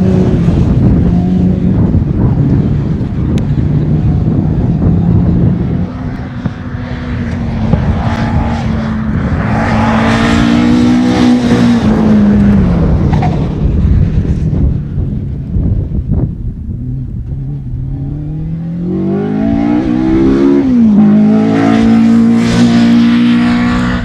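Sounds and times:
racing car engine passing by: 5.2 - 13.5, 17.6 - 24.0.

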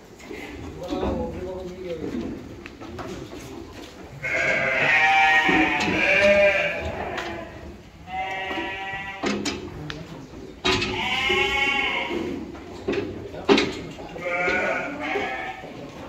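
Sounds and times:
goats bleating: 4.1 - 9.4, 10.8 - 12.5, 14.1 - 15.8.

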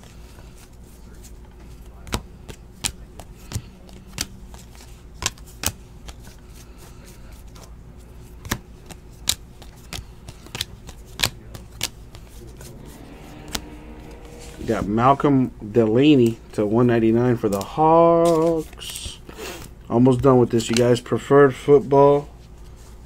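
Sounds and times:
trading cards snapping: 2.0 - 6.4, 8.4 - 12.6.

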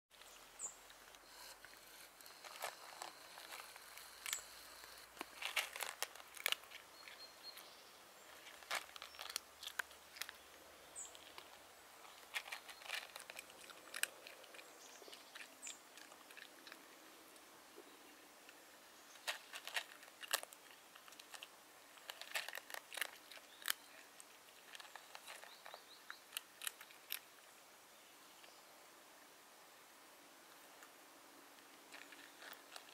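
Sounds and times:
cat crunching dry kibble: 1.1 - 7.4, 8.3 - 16.9, 19.2 - 27.5, 31.6 - 32.9.

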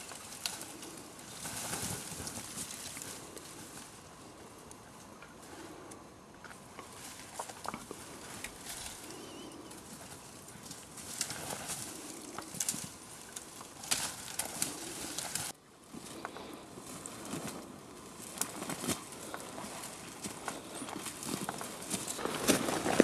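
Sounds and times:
twigs rustling and snapping: 0.0 - 23.0.

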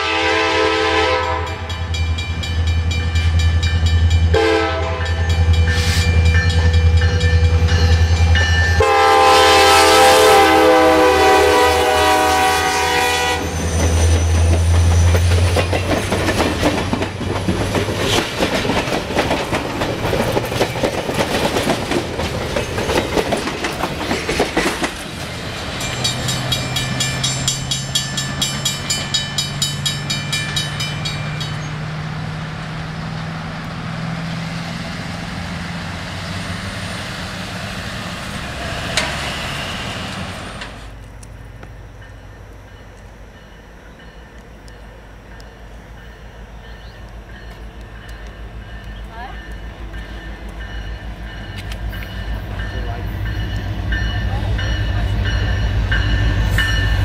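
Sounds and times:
train horn: 0.0 - 2.0, 4.3 - 6.1, 8.8 - 13.6
locomotive engine rumble: 0.0 - 57.0
train wheels clattering on rail joints: 13.5 - 31.9, 38.7 - 57.0.

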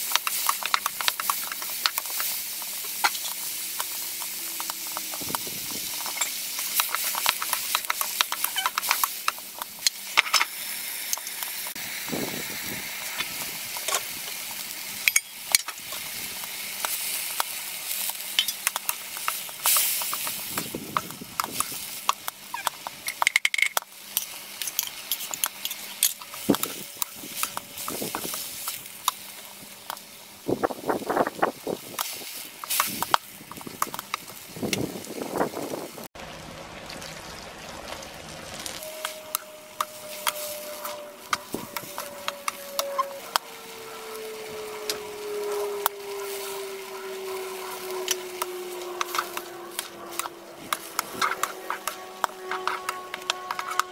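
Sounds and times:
vegetables sizzling in wok: 0.0 - 53.9
wooden spatula scraping pan: 48.8 - 53.9.

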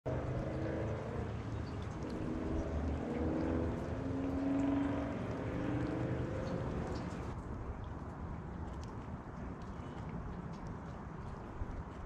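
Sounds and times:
motor engine droning: 0.1 - 7.4.

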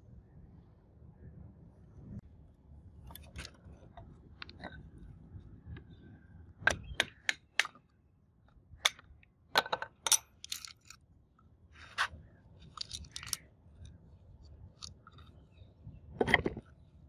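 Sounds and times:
clinks and knocks: 9.6 - 11.0, 12.6 - 13.4.

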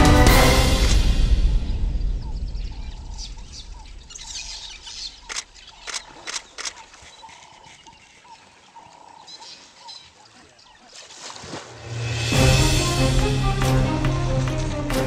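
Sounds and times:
low rumble: 0.0 - 5.4
birds calling: 1.5 - 11.3
animal splashing in water: 4.4 - 12.2.

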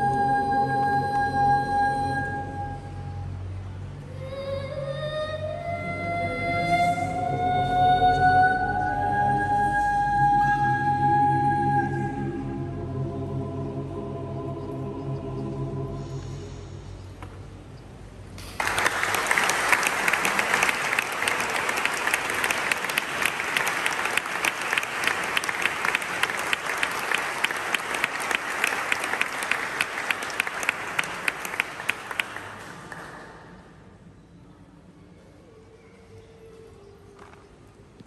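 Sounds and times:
audience applauding: 18.4 - 33.6.

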